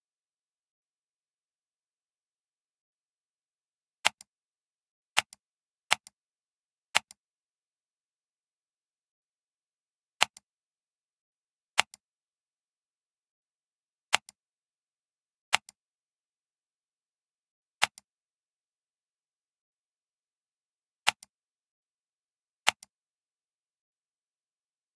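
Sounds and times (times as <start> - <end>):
computer mouse clicking: 4.0 - 4.3, 5.2 - 6.2, 7.0 - 7.2, 10.2 - 10.4, 11.8 - 12.0, 14.1 - 14.4, 15.5 - 15.8, 17.8 - 18.1, 21.1 - 21.3, 22.6 - 22.9.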